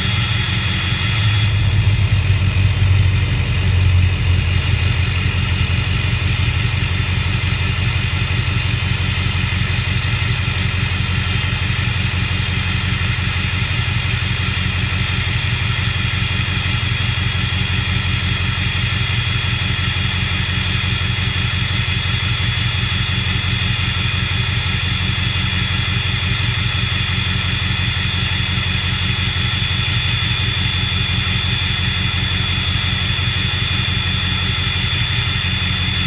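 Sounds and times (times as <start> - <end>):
turbocharger whistle: 0.0 - 3.0
diesel engine idling: 0.0 - 36.0.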